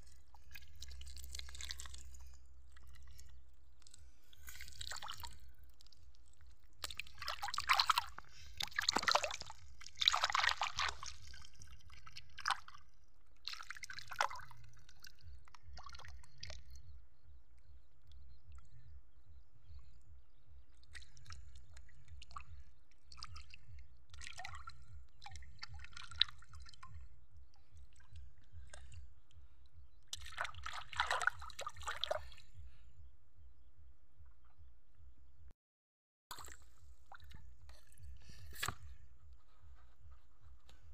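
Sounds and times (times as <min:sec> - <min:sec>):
mud squelching: 0:00.0 - 0:12.8, 0:30.2 - 0:32.4, 0:36.3 - 0:40.9
water splashing: 0:00.0 - 0:12.8, 0:30.2 - 0:32.4, 0:36.3 - 0:38.8.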